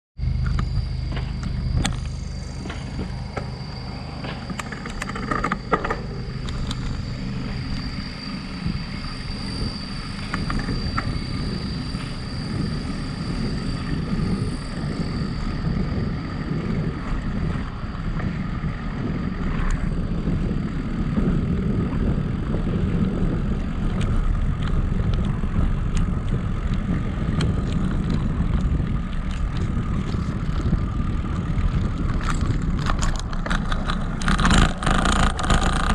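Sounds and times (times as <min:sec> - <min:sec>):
bicycle tyres rumbling on asphalt: 0:00.2 - 0:35.9
thin steady high whine: 0:00.2 - 0:35.9
wind buffeting microphone: 0:00.2 - 0:35.9.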